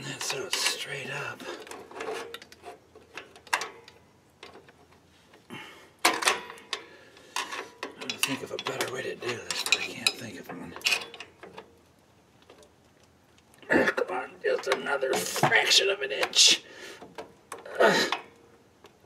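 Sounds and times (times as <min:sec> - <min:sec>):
screwdriver clinking and scraping metal: 0:00.0 - 0:05.4, 0:06.0 - 0:11.7.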